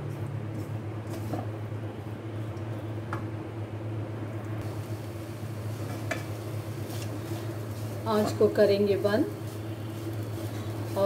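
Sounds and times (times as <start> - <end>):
steady low hum: 0.0 - 11.0
spatula scraping in a wok: 5.8 - 11.0.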